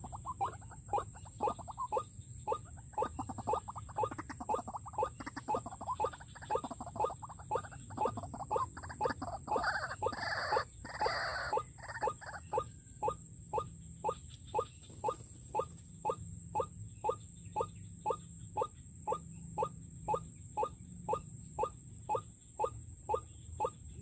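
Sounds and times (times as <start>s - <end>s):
waterhen calling: 0.0s - 12.7s.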